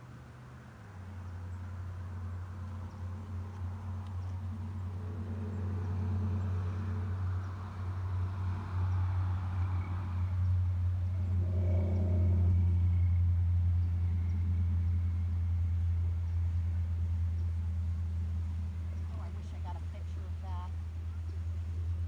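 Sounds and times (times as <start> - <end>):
low mechanical drone: 0.0 - 22.0.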